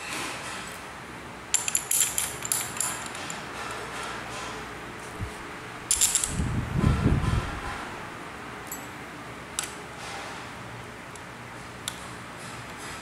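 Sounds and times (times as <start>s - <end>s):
metal clinking and rattling: 1.5s - 3.8s, 5.9s - 6.5s, 8.7s - 8.9s.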